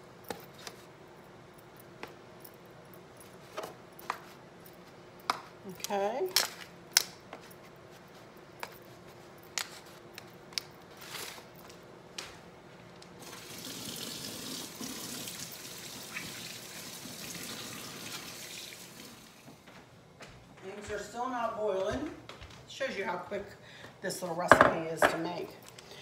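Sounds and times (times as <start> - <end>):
faucet running into metal sink: 13.2 - 19.3.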